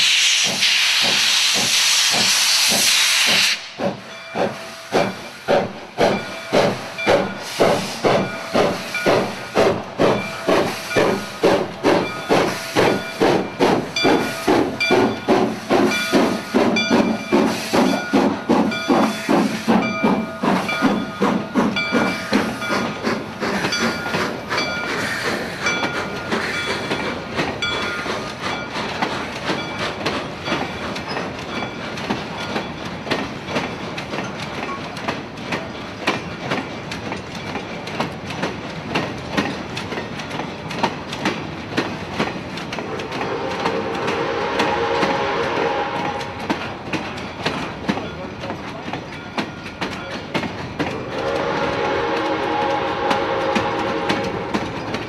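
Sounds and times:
steam hissing: 0.0 - 31.1
steam locomotive chuffing: 0.0 - 55.0.

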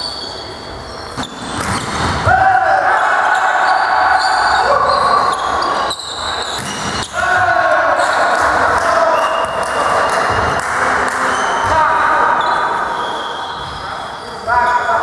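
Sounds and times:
volleyball hits: 1.2 - 2.4, 6.4 - 11.8
high voices shouting: 7.0 - 10.2.

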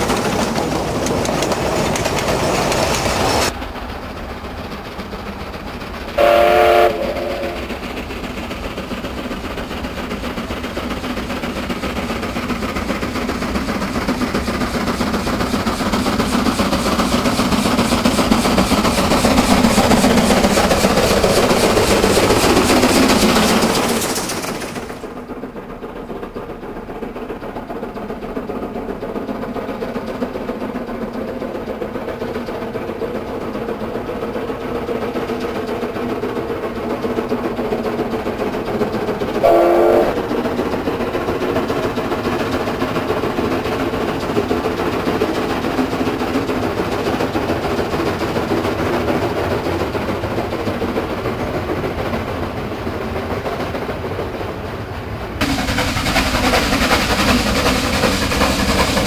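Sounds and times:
steam locomotive running: 0.0 - 59.0
steam whistle blast: 6.2 - 7.7, 39.4 - 40.2.

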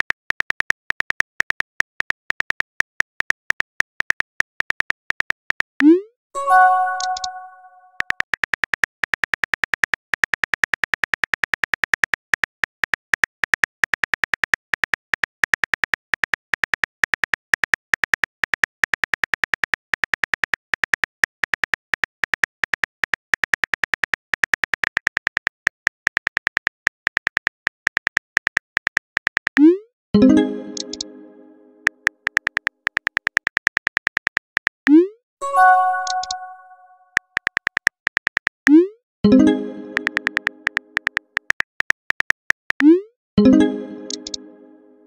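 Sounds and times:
phone keyboard clicks: 6.9 - 7.4, 30.8 - 31.0.

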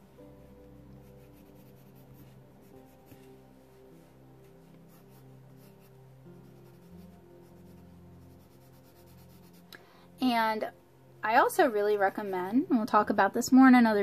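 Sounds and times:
soft background music: 0.0 - 14.0
pencil scratching on paper: 0.8 - 9.7, 11.8 - 12.7.

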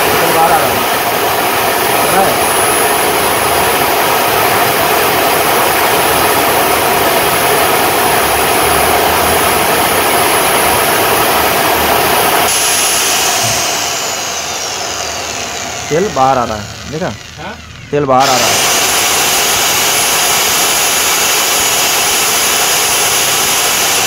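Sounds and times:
electric chainsaw motor whining: 0.0 - 24.0.

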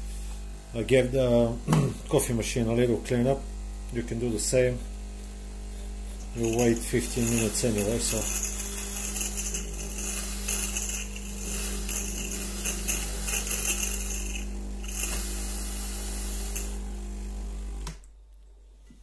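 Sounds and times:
espresso machine pump buzzing: 0.0 - 18.0
steam hissing: 6.3 - 16.8.

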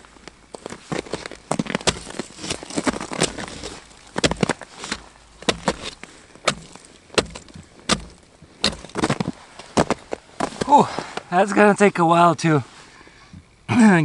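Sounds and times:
hatchet chopping ice: 1.8 - 3.6, 4.2 - 9.1.

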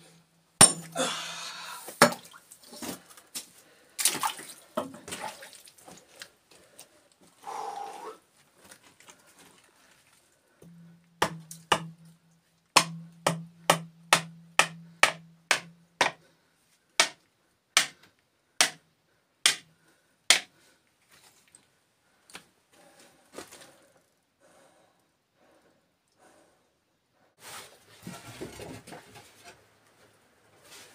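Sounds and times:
hammer striking rock: 0.6 - 1.0, 10.6 - 12.0, 12.8 - 16.2, 17.0 - 17.2, 17.8 - 18.0, 18.6 - 18.8, 19.5 - 19.7, 20.3 - 20.5.

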